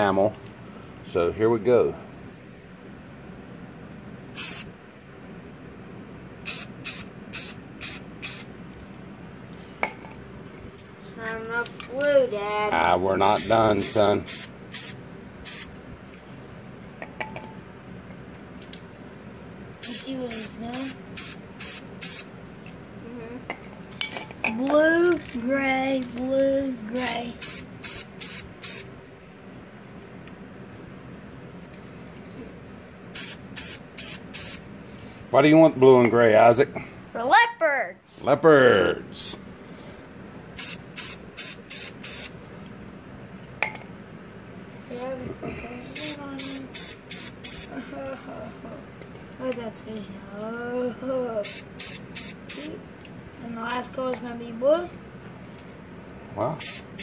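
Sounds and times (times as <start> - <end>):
spray paint can hissing: 4.3 - 4.7, 6.4 - 8.5, 13.4 - 15.8, 19.8 - 22.3, 27.0 - 28.9, 33.1 - 34.6, 40.6 - 42.4, 46.0 - 47.7, 51.4 - 52.8, 56.6 - 57.0
aerosol spray can spurts: 4.4 - 4.7.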